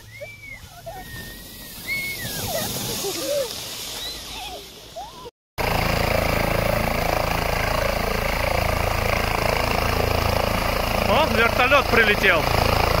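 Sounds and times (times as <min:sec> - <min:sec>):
helicopter engine and rotor chop: 0:05.6 - 0:13.0.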